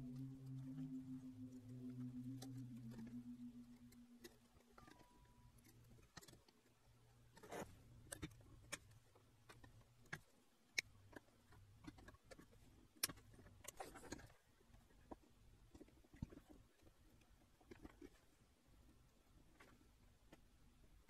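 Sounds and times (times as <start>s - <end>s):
faint low hum: 0.0s - 21.0s.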